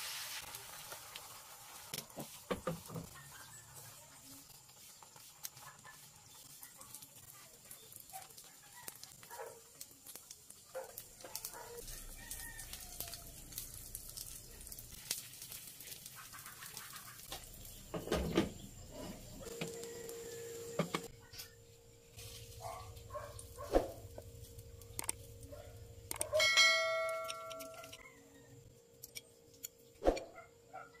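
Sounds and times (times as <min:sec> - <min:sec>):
omelette sizzling in a frying pan: 0:00.0 - 0:20.8, 0:22.1 - 0:25.4.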